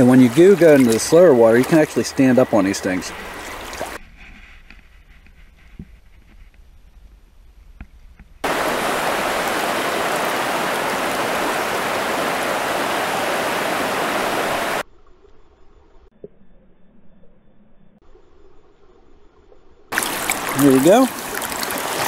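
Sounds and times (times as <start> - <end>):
river water rushing: 0.0 - 4.0, 8.4 - 14.8, 19.9 - 22.0.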